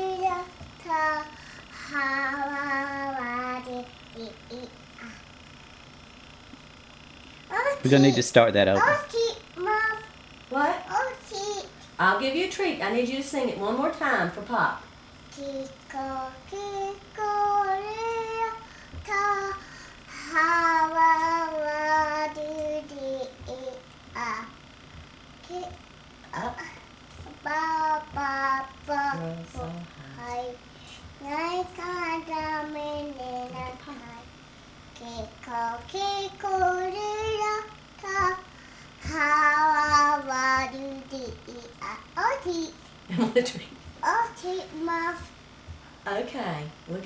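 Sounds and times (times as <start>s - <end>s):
girl singing drawn-out notes: 0.0s - 5.1s, 15.3s - 24.5s, 25.4s - 30.6s, 31.2s - 34.3s, 35.0s - 42.7s.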